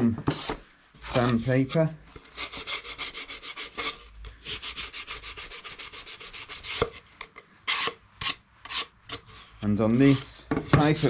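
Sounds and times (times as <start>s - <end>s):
sandpaper rubbing on wood: 2.4s - 6.8s.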